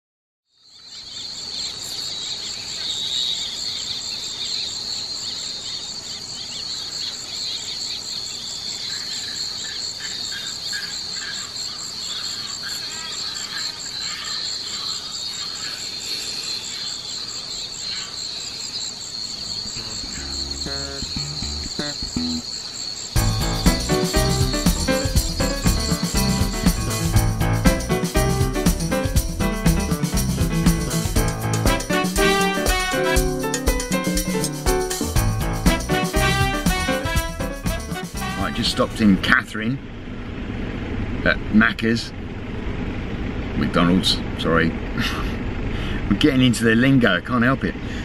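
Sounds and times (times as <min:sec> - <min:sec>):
insects trilling: 0:00.5 - 0:40.3
music with a beat: 0:23.2 - 0:38.6.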